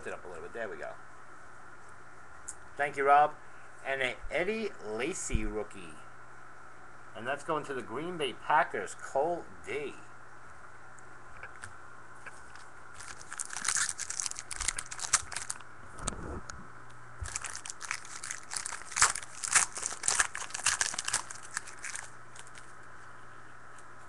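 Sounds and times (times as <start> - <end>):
faint steady hum: 0.0 - 24.0
foil wrapper tearing and crinkling: 13.0 - 15.6, 17.2 - 22.7.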